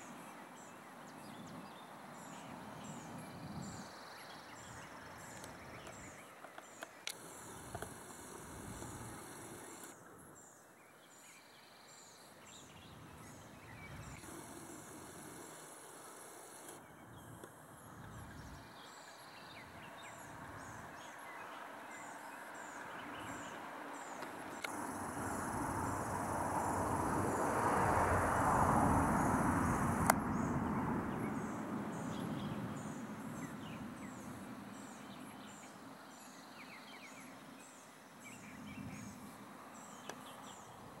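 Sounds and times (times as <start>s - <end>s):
passing vehicle: 19.9s - 34.9s.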